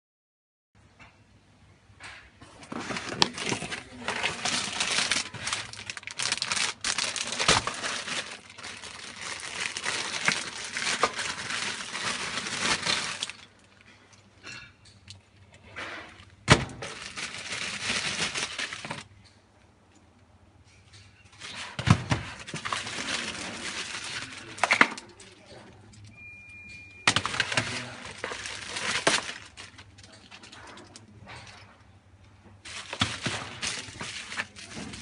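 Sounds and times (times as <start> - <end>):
plastic bags crinkling: 2.6 - 13.9, 16.2 - 19.1, 21.4 - 25.5, 27.0 - 31.0, 32.6 - 35.0.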